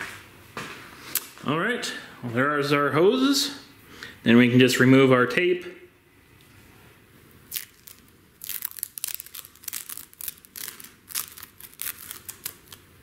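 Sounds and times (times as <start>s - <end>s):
tape peeling with crackles: 7.5s - 12.9s.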